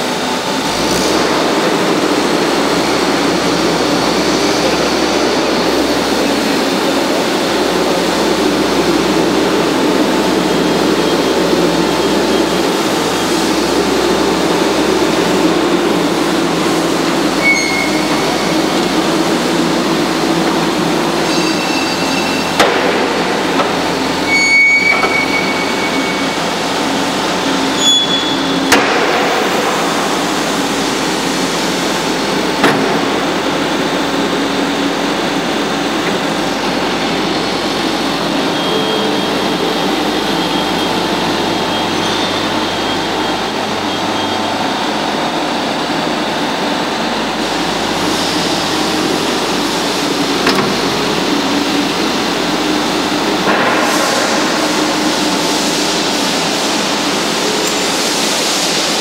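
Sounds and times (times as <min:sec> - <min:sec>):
skid steer engine running: 0:00.0 - 0:59.0
short high squeals: 0:17.3 - 0:18.6, 0:21.2 - 0:22.6, 0:24.1 - 0:28.7.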